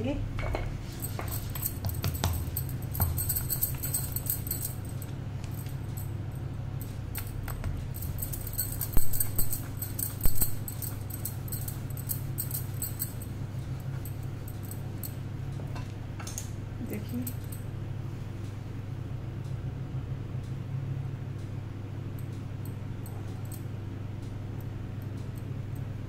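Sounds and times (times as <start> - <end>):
low hum: 0.0 - 15.6.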